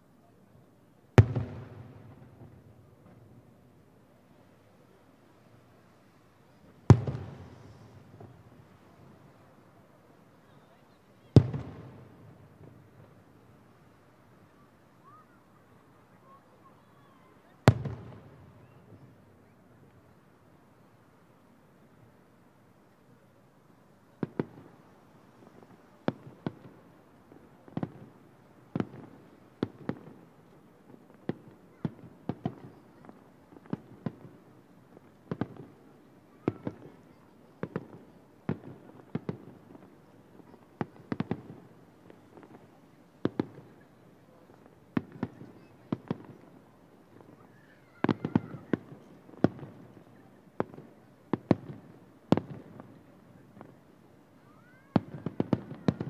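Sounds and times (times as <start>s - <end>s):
distant firework bangs: 1.2s - 3.3s, 6.7s - 9.2s, 11.3s - 13.1s, 17.7s - 19.2s, 36.4s - 42.6s, 43.2s - 43.8s, 44.5s - 46.5s, 47.1s - 53.0s, 54.9s - 56.0s.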